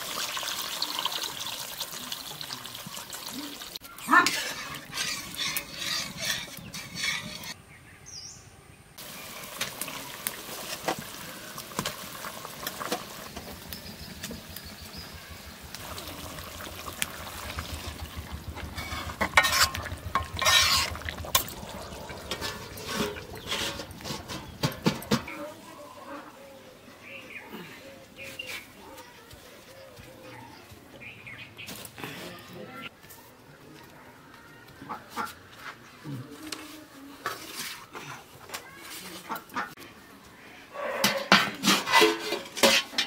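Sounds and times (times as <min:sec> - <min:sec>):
food sizzling in a pan: 0:00.0 - 0:03.8, 0:09.0 - 0:13.8
utensil scraping a pan: 0:04.1 - 0:07.6, 0:17.1 - 0:25.4, 0:41.0 - 0:43.0.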